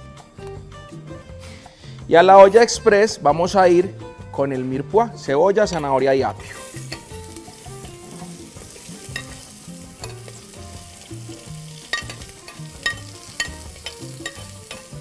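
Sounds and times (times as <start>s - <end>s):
vegetables sizzling in hot oil: 6.4s - 15.0s
utensil clicking on metal pot: 11.8s - 14.9s.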